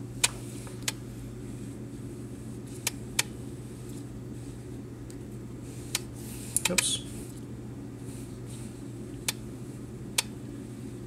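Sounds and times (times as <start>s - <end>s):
aquarium pumps humming: 0.0s - 11.0s.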